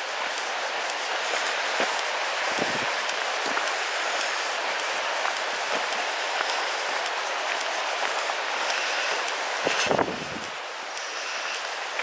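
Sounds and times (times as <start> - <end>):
river rushing over boulders: 0.0 - 12.0
footsteps on gravel: 1.3 - 10.5.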